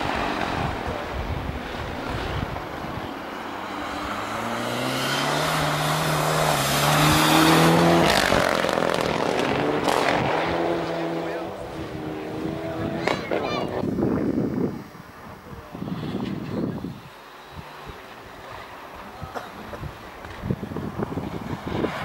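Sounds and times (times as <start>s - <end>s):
car passing by rush: 0.0s - 13.6s, 20.5s - 22.0s
rally car engine at full throttle: 0.0s - 22.0s.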